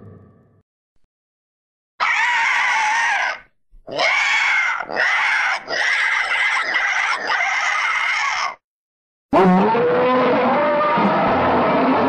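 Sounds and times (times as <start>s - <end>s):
toy dinosaur roars and growls: 2.0s - 8.6s, 9.4s - 11.3s.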